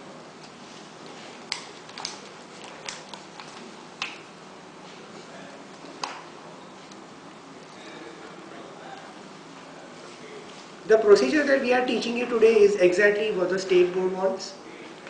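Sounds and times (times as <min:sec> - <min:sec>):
faint room noise: 0:00.0 - 0:15.0
plastic wrappers clicking and crinkling: 0:01.5 - 0:04.2.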